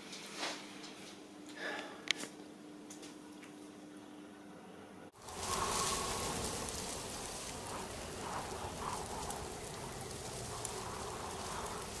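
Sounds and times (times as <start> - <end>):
rain-like rushing hiss: 5.2 - 12.0.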